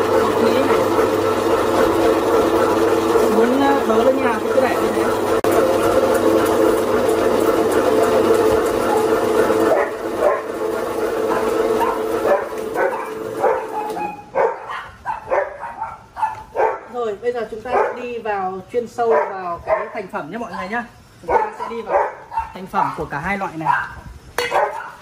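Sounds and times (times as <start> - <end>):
electric meat slicer motor hum: 0.0 - 15.7
dog barking in sharp yips: 11.8 - 16.9, 23.7 - 25.0.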